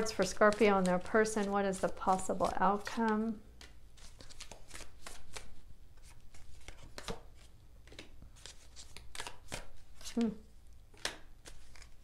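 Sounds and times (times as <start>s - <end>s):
cards shuffled and slapped: 2.8s - 10.3s, 10.9s - 12.0s.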